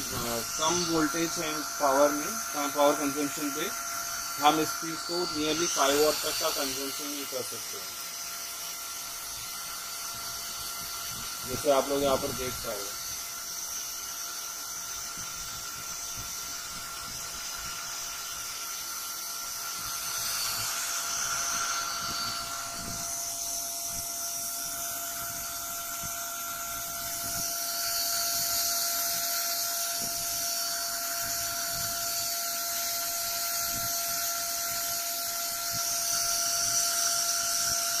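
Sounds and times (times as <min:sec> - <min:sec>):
electrical whine: 0:00.0 - 0:38.0.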